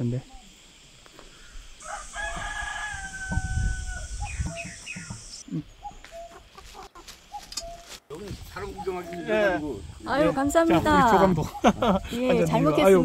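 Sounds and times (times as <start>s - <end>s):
rooster crowing: 1.8s - 5.0s
chicken clucking: 6.0s - 7.8s.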